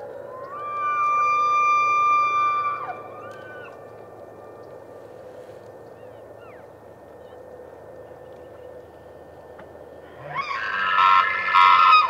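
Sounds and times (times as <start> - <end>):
elk bugling: 0.0 - 7.5, 10.0 - 12.0.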